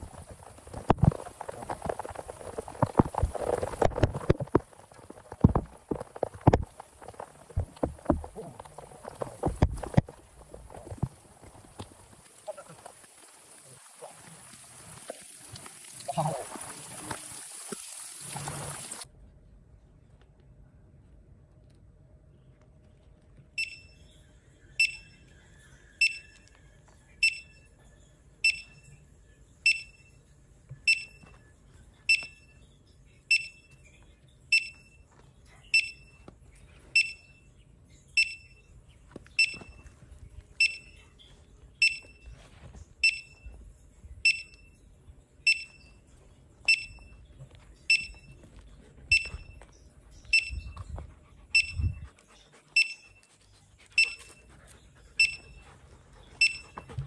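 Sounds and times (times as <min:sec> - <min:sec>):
metal detector beeping: 0:23.6 - 0:24.0, 0:24.8 - 0:25.2, 0:26.0 - 0:26.4, 0:27.2 - 0:27.7, 0:28.4 - 0:29.0, 0:29.7 - 0:30.1, 0:30.8 - 0:31.3, 0:32.1 - 0:32.6, 0:33.3 - 0:33.8, 0:34.5 - 0:35.0, 0:35.7 - 0:36.2, 0:37.0 - 0:37.4, 0:38.2 - 0:38.6, 0:39.4 - 0:39.9, 0:40.6 - 0:41.0, 0:41.8 - 0:42.4, 0:43.0 - 0:43.5, 0:44.2 - 0:44.8, 0:45.5 - 0:46.0, 0:46.7 - 0:47.2, 0:47.9 - 0:48.5, 0:49.1 - 0:49.6, 0:50.3 - 0:50.8, 0:51.6 - 0:52.0, 0:52.8 - 0:53.3, 0:54.0 - 0:54.4, 0:55.2 - 0:55.6, 0:56.4 - 0:57.0.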